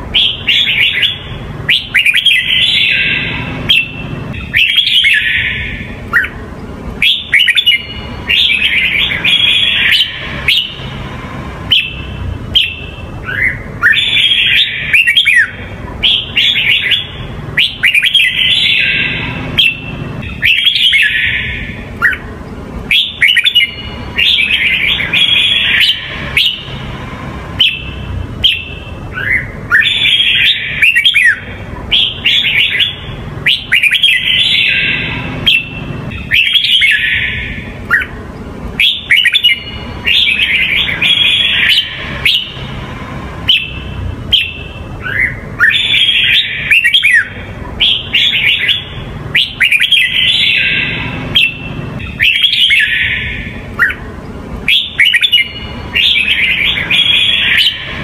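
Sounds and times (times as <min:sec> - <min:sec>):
bird singing whistled phrases: 0:00.1 - 0:06.4, 0:07.0 - 0:10.9, 0:11.7 - 0:22.2, 0:22.9 - 0:26.8, 0:27.6 - 0:38.1, 0:38.8 - 0:42.7, 0:43.5 - 0:54.0, 0:54.7 - 0:58.0.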